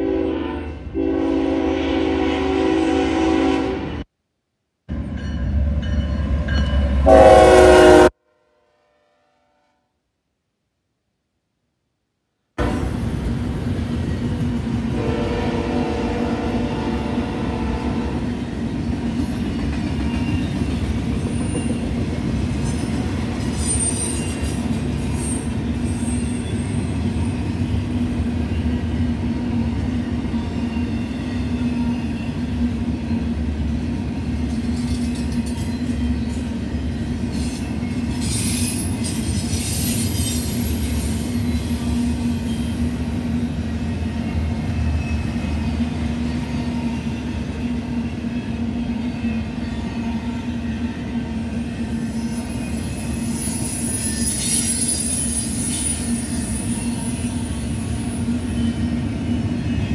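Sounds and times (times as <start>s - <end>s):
train wheels rumbling on rails: 12.6s - 59.9s
high wheel squealing: 52.0s - 59.9s.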